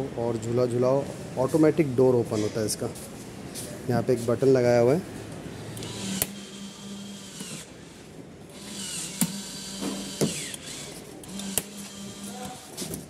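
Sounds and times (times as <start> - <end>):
small electric motor humming: 5.7 - 7.9, 8.5 - 12.7.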